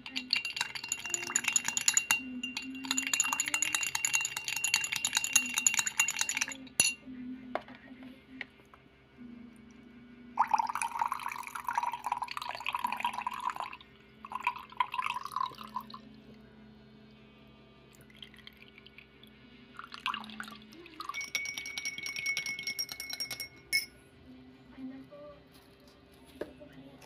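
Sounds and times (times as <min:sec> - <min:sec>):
milk pouring into a glass: 0:00.0 - 0:07.0, 0:10.4 - 0:16.1, 0:17.9 - 0:23.4
teaspoon stirring in a glass: 0:00.0 - 0:07.0, 0:10.4 - 0:15.9, 0:19.8 - 0:24.0.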